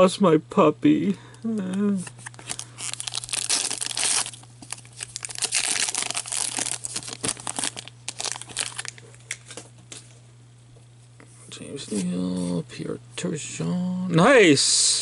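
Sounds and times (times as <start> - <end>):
card pack wrapper crinkling and tearing: 1.9 - 9.6.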